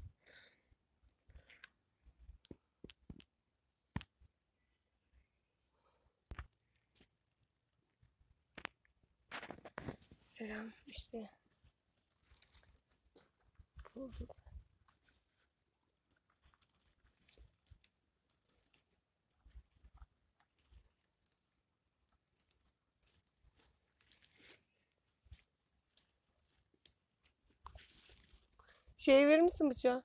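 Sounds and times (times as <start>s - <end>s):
crunching pine needles and twigs: 9.3s - 28.8s.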